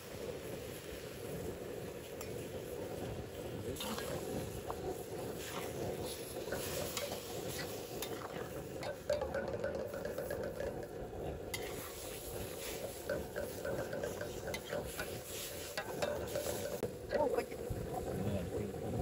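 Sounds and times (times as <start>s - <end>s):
vegetables sizzling in a wok: 0.0s - 19.0s
tongs clicking and scraping pan: 3.8s - 17.3s.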